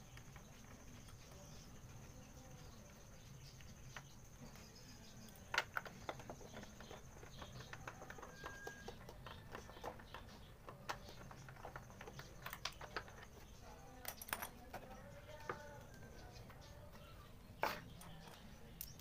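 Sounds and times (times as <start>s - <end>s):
tool knocking on plastic covers: 5.5s - 13.2s.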